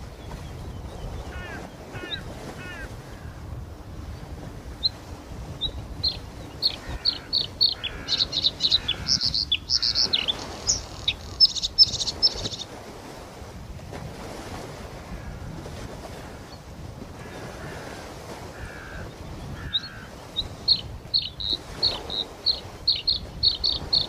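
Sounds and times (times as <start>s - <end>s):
bird singing high chirps: 5.6s - 12.6s, 20.7s - 24.0s.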